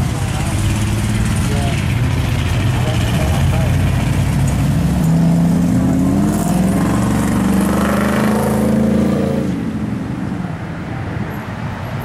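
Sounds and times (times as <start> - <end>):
car engine humming: 0.0 - 10.6.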